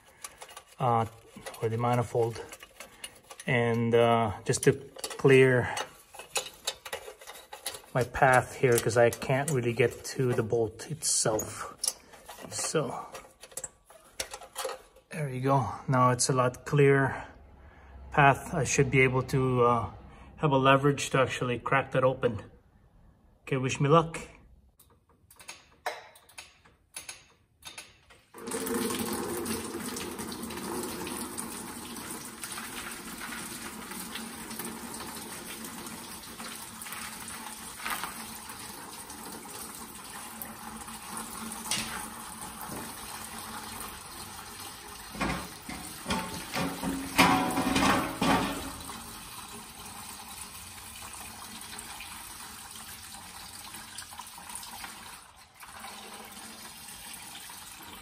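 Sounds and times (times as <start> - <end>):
coolant pouring into funnel: 28.4 - 58.0.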